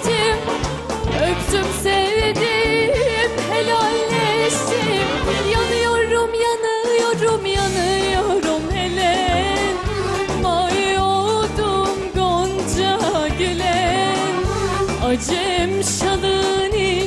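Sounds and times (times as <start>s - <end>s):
live band playing: 0.0s - 17.0s
woman singing: 0.0s - 17.0s.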